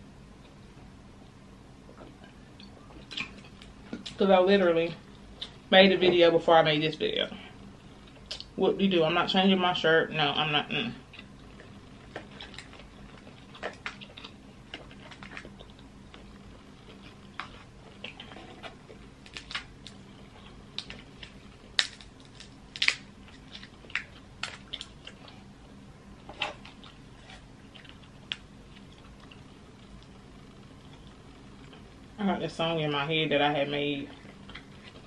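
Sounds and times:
crab shell cracking: 20.7 - 25.1.

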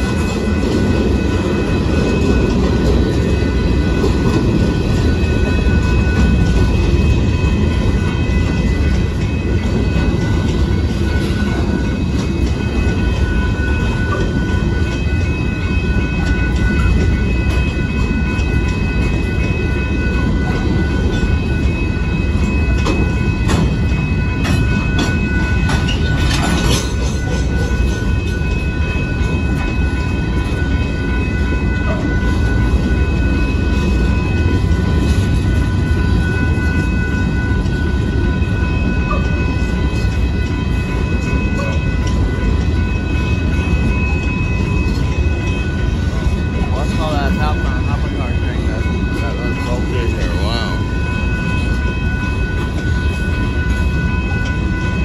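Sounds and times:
freight train rolling past: 0.0 - 55.0
high-pitched ringing tone: 0.0 - 55.0
wheels clattering over rails: 22.4 - 30.8.

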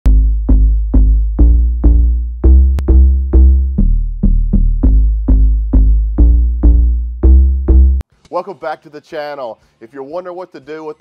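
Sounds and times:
electronic music with drum-machine beat: 0.1 - 8.0
heavy bass notes: 0.1 - 8.0.

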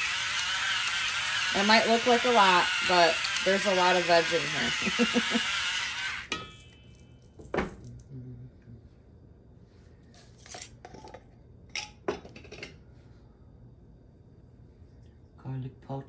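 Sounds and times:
electric pepper grinder whirring: 0.0 - 6.3.

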